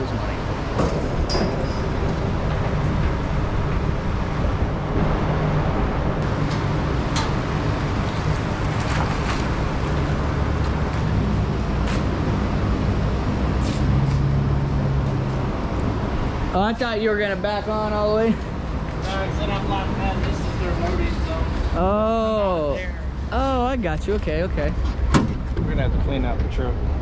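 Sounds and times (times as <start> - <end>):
traffic hum: 0.0 - 27.0.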